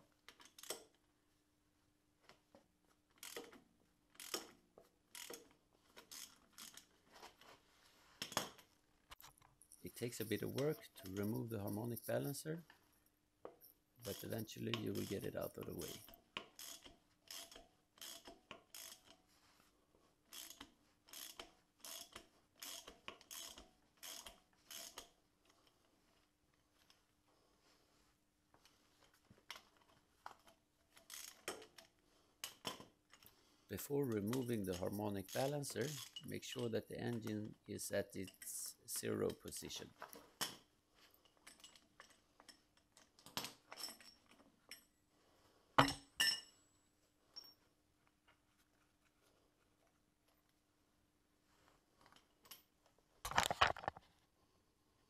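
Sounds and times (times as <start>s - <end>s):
ratchet wrench clicking: 3.2s - 3.6s, 4.2s - 6.9s, 14.0s - 19.2s, 20.3s - 25.2s, 31.0s - 31.7s, 34.1s - 36.3s
metal tools clinking: 9.6s - 12.6s, 13.6s - 16.1s, 33.8s - 37.4s, 41.3s - 44.9s, 47.3s - 47.6s.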